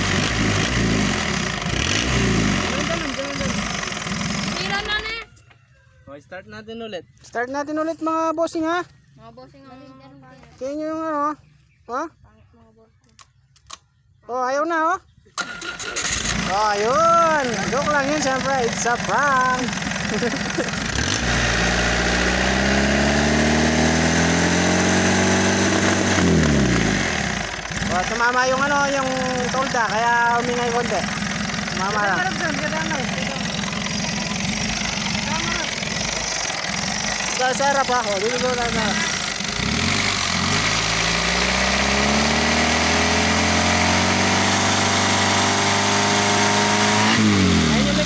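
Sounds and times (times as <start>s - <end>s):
diesel engine revving: 0.0s - 5.0s, 15.4s - 48.0s.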